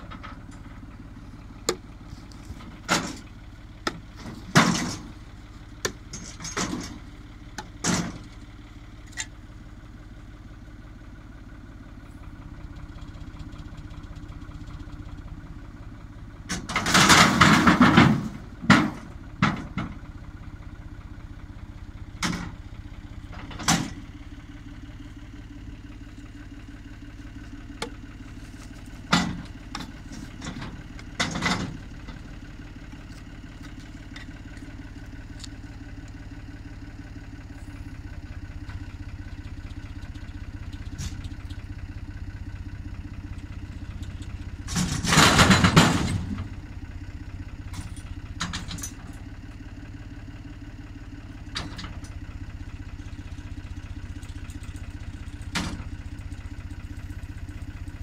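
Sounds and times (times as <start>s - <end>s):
metal clanks: 0.0s - 5.2s, 5.8s - 8.4s, 27.4s - 32.2s, 44.0s - 46.5s
truck engine running: 0.0s - 58.0s.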